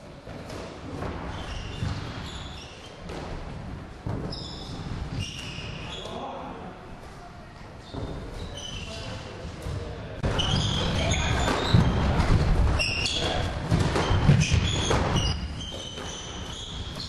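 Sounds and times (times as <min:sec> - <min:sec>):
sneakers squeaking: 0:00.3 - 0:06.4, 0:07.7 - 0:17.0.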